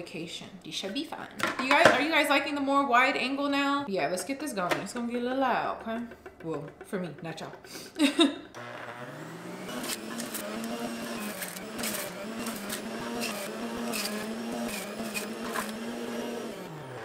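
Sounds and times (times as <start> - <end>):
juicer motor hum: 8.5 - 17.0
strawberries crunching in juicer: 8.6 - 17.0.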